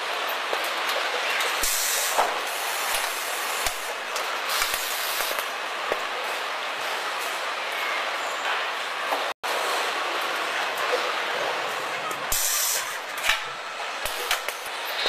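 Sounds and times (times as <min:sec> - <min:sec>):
bursts of hiss: 0:01.6 - 0:05.5, 0:12.3 - 0:13.0
industrial machinery din: 0:09.5 - 0:15.0.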